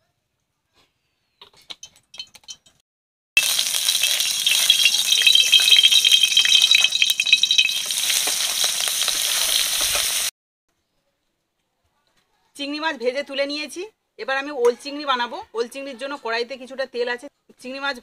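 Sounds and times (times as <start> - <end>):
prawns sizzling in hot oil: 3.4 - 10.3.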